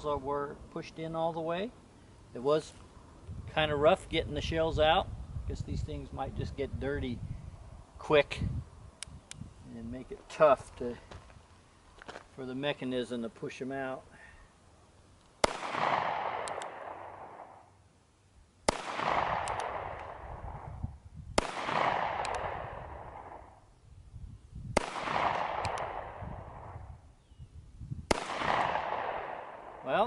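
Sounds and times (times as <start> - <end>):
gunshot echo off hills: 15.4 - 17.6, 18.7 - 20.7, 21.4 - 23.5, 24.8 - 26.8, 28.1 - 29.9
revolver gunshots: 15.4 - 17.6, 18.7 - 20.7, 21.4 - 23.5, 24.8 - 26.8, 28.1 - 29.8.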